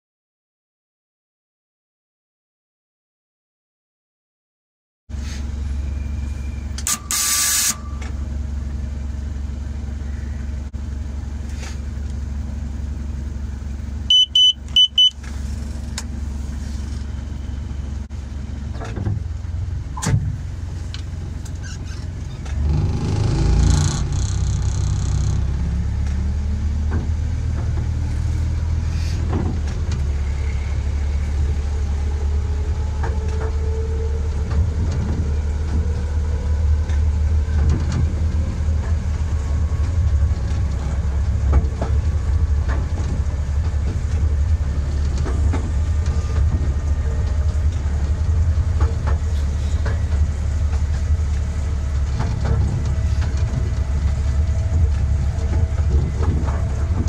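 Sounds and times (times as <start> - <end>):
locomotive engine humming and revving: 5.1 - 57.0
short high-pitched beeps: 14.1 - 15.2.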